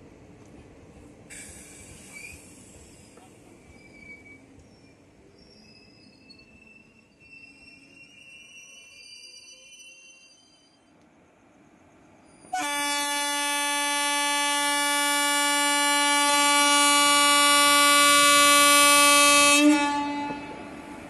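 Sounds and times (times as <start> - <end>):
locomotive horn blast: 12.5 - 20.8.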